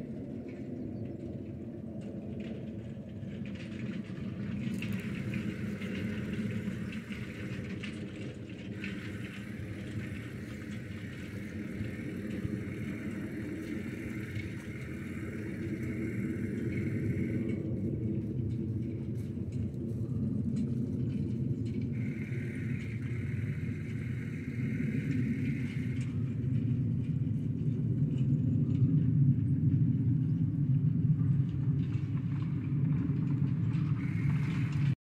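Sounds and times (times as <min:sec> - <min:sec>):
steady low rumble: 0:00.0 - 0:35.0
faint hiss: 0:08.7 - 0:17.7, 0:22.0 - 0:26.2.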